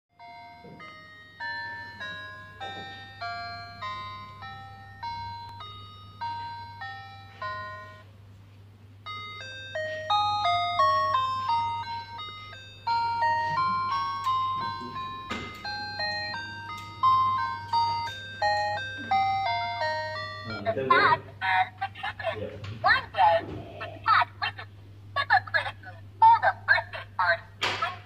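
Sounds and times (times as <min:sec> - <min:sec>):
electronic beeping melody: 0:00.2 - 0:08.1, 0:09.1 - 0:21.3.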